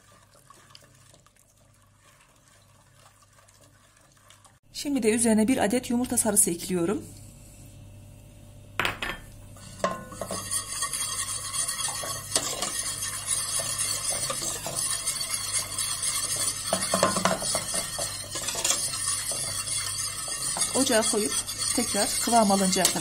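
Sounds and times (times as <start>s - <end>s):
whisk scraping in metal pot: 0.0s - 4.6s, 9.6s - 23.0s
knocks on pot: 8.8s - 9.3s.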